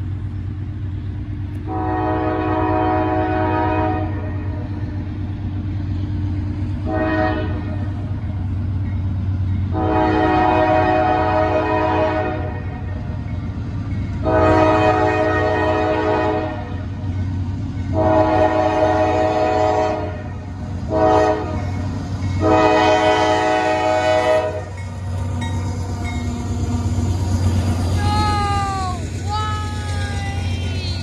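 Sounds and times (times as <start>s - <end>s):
locomotive engine rumble: 0.0s - 31.0s
locomotive horn blasts: 1.7s - 4.6s, 6.8s - 7.8s, 9.7s - 12.7s, 14.2s - 16.8s, 17.9s - 20.3s, 20.9s - 21.7s, 22.4s - 24.8s.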